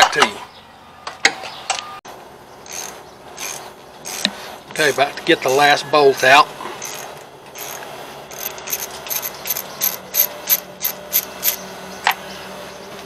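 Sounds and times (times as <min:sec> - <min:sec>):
ratchet wrench clicking: 0:02.7 - 0:11.6.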